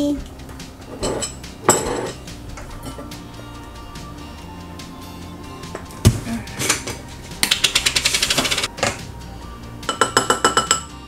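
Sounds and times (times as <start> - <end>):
spoon knocking ceramic bowl: 9.9 - 10.9.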